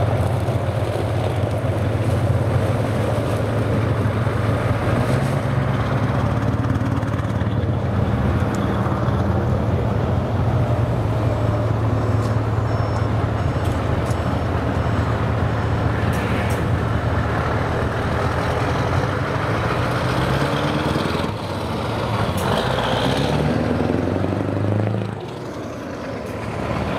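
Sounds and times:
diesel truck engine under load: 0.0 - 26.9.

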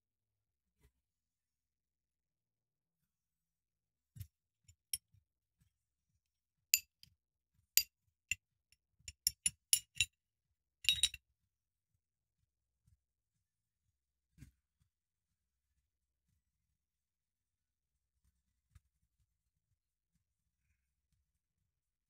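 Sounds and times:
metal blanks clinking: 10.9 - 11.2.

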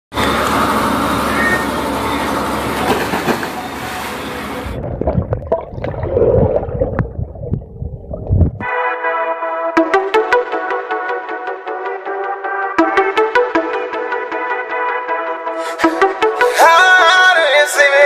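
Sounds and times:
rushing splashing water: 3.1 - 8.6
underwater gurgling: 4.5 - 8.6
bubble clicks: 4.8 - 8.6.

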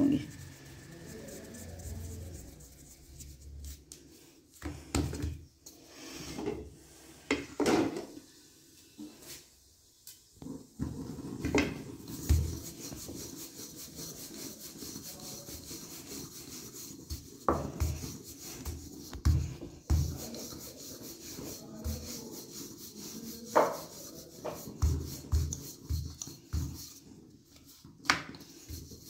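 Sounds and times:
rolling pin rolling over dough: 0.0 - 5.4, 10.4 - 29.0
dough knocks and rubs: 10.8 - 29.0.

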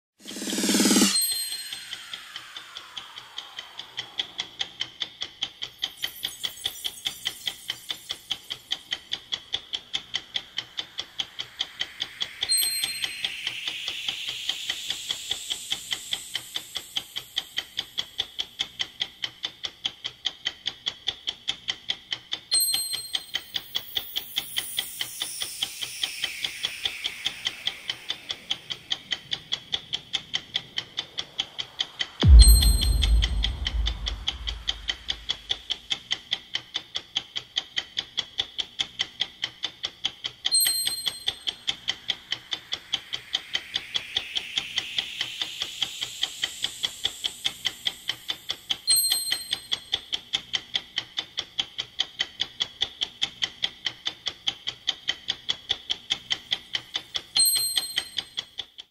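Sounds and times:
bright chime: 0.2 - 3.8, 10.2 - 17.4, 22.6 - 29.3, 31.8 - 35.5, 40.5 - 48.3, 57.4 - 58.3
clock ticking: 0.2 - 58.8
soft whoosh: 24.6 - 35.8, 41.3 - 47.9
deep boom: 32.2 - 35.4.

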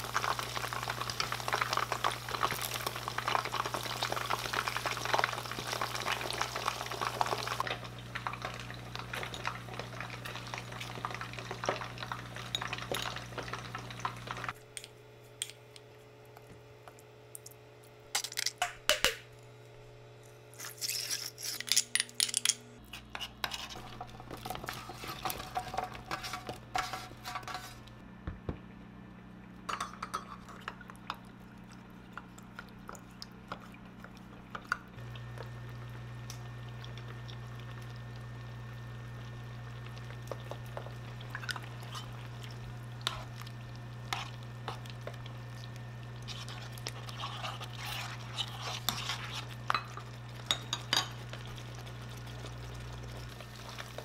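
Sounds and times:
steady low hum: 6.8 - 54.0
spoon stirring in steel cup: 20.6 - 27.8, 46.2 - 51.5
wooden spoon scraping frying pan: 22.9 - 27.9, 46.2 - 49.7.

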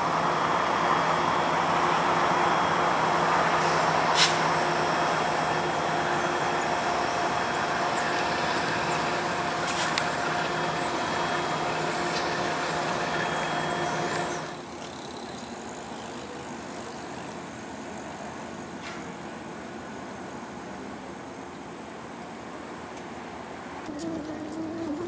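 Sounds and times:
diesel locomotives idling: 0.0 - 25.0
distant passenger train rumbling: 0.0 - 25.0
air hiss: 3.6 - 4.5.

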